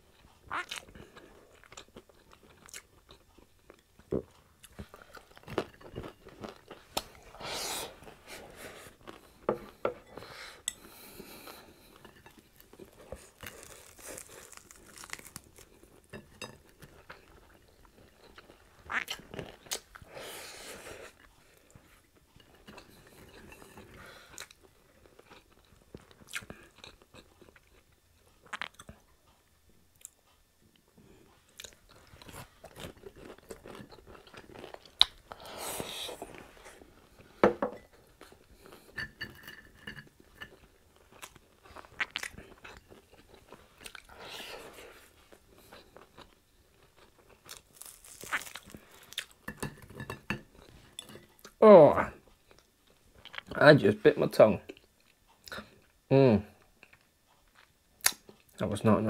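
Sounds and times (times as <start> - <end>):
person chewing crispy food: 0.1 - 7.4, 8.9 - 9.8, 11.2 - 20.1, 21.0 - 29.4, 31.2 - 37.4, 40.2 - 51.6.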